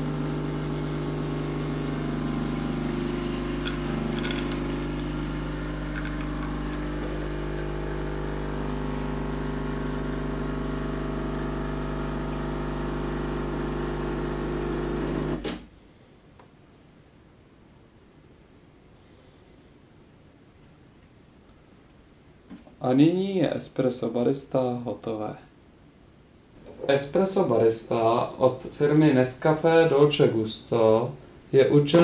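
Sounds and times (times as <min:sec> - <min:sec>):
coffee machine pump humming: 0:00.0 - 0:15.5.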